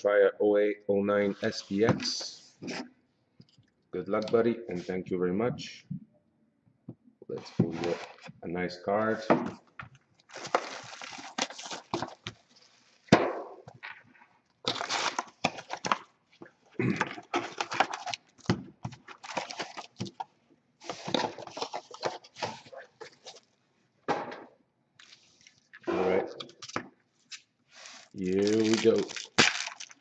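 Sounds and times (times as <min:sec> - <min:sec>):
cellophane crinkling: 0:10.2 - 0:13.1, 0:14.6 - 0:16.1, 0:17.2 - 0:23.6, 0:25.0 - 0:30.0
foil packs rustling and tapping: 0:10.3 - 0:13.1, 0:14.6 - 0:16.5, 0:17.2 - 0:23.5, 0:27.8 - 0:30.0.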